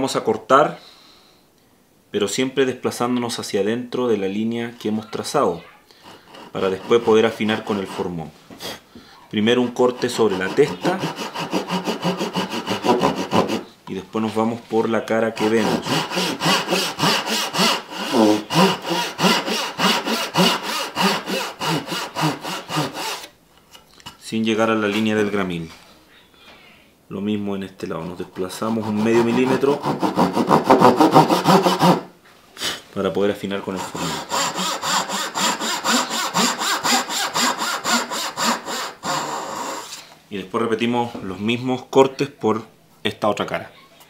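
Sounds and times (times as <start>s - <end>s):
handsaw rasping through wood: 6.0s - 8.2s, 9.5s - 13.7s, 15.4s - 23.3s, 28.6s - 32.1s, 33.7s - 40.0s.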